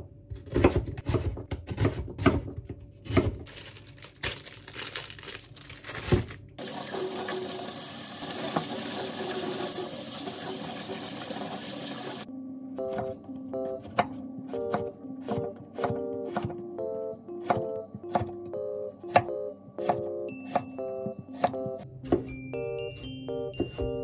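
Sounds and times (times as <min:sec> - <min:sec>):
knife chopping on wooden board: 0:00.3 - 0:03.4, 0:13.8 - 0:16.6, 0:17.4 - 0:18.4, 0:19.1 - 0:22.4
tap water running into sink: 0:06.6 - 0:12.2.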